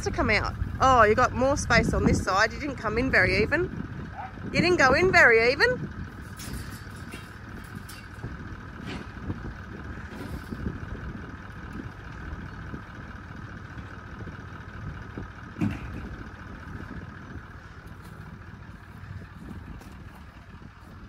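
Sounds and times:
vehicle engine running at low speed: 0.0 - 21.0
clunk: 6.2 - 9.4, 15.5 - 16.2.

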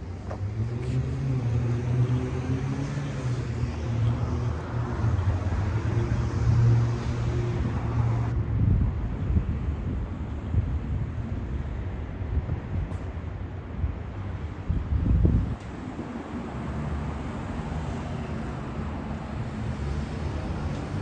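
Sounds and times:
vehicle engine hum: 0.0 - 21.0.

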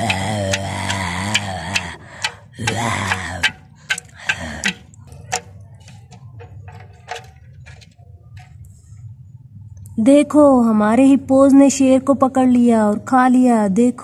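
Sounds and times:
plastic toys clacking on floor: 0.0 - 8.6.

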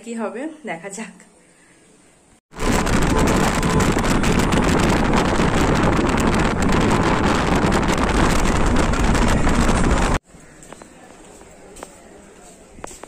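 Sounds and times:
wind buffeting microphone: 2.5 - 10.2
road noise: 2.5 - 13.0
car engine: 2.6 - 10.2.

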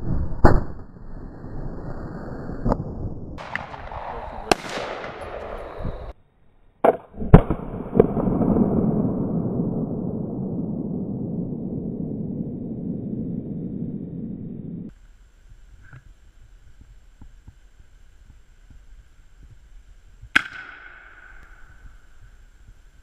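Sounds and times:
rifle shots: 3.4 - 6.0, 20.4 - 21.9
long rumble: 7.2 - 16.9.

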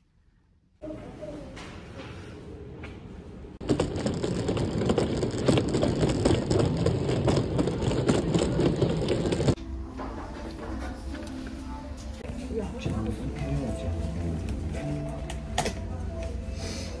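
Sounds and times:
suitcase wheels rolling over tiles: 3.6 - 9.6.

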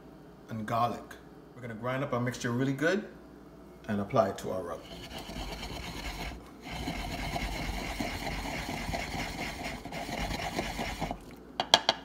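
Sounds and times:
pestle grinding in wooden mortar: 4.8 - 11.3.

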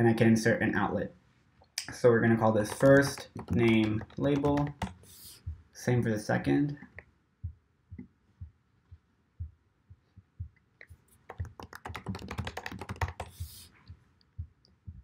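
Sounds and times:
typing on computer keyboard: 2.6 - 5.0, 11.3 - 13.4.

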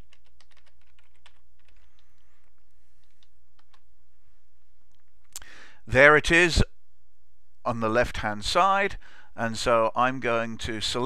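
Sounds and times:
computer keyboard typing: 0.0 - 3.8
steady low hum: 1.0 - 11.0.

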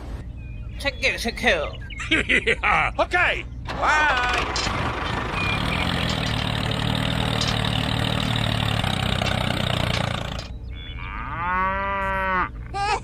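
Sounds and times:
tractor engine running: 3.6 - 10.8
cow mooing: 10.8 - 12.6.

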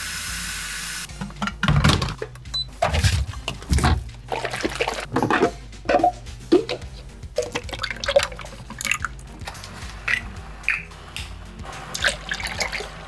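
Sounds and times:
soft background music: 0.3 - 13.0
water or liquid: 4.3 - 9.3, 11.9 - 13.0.

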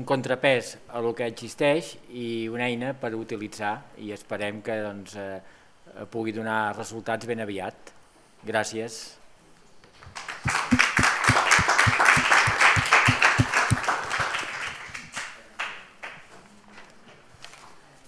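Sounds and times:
audience applauding: 10.0 - 16.2
close clapper clapping: 10.0 - 16.3
scattered knocks: 10.4 - 14.1.

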